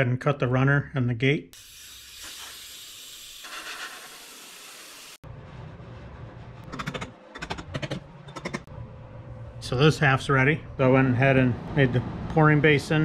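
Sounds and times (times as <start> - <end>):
low hum: 5.2 - 12.8.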